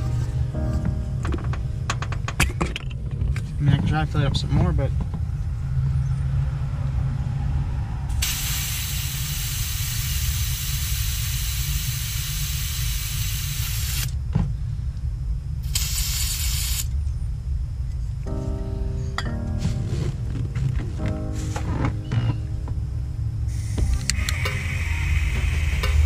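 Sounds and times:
low rumble: 0.0 - 8.2, 16.9 - 26.0
butane gas hissing: 8.2 - 14.1, 15.6 - 16.9, 23.5 - 26.0.

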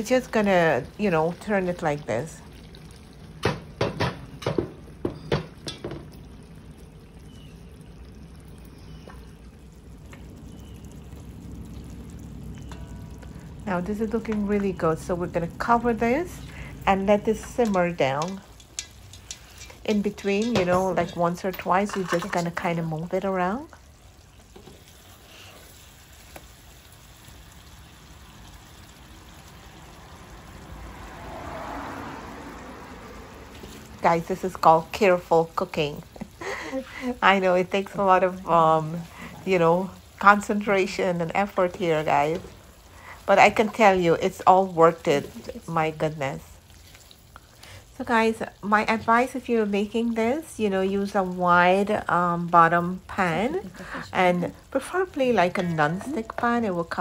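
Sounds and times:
curry simmering: 0.0 - 57.0
metal pot knocking on burner grate: 3.4 - 6.2, 17.4 - 22.4.

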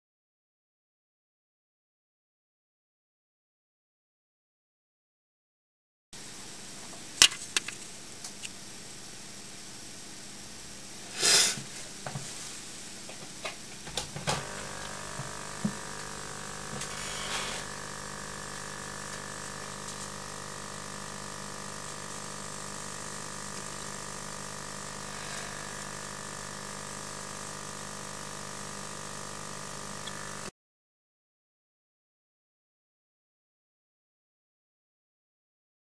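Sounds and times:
vacuum pump humming and whining: 6.2 - 30.5
short loud hiss: 11.1 - 11.6, 16.8 - 17.7.

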